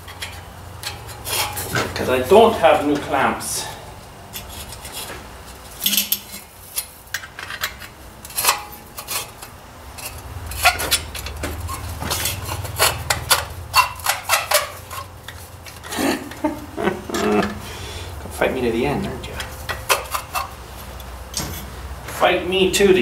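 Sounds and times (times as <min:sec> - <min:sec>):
hand tools clinking on metal: 0:00.0 - 0:03.8, 0:05.8 - 0:17.6.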